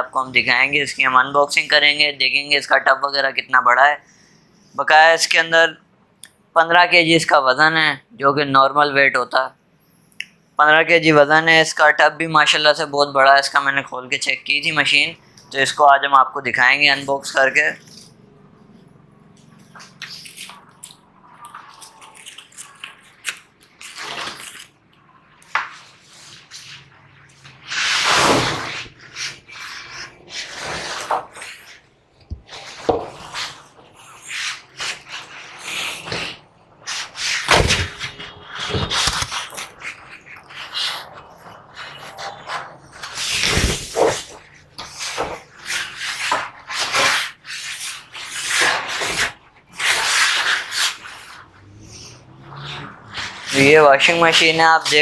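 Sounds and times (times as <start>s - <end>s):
cardboard scraping: 27.4s - 31.8s, 32.4s - 51.6s, 52.2s - 55.0s
cardboard rustling: 34.5s - 47.3s.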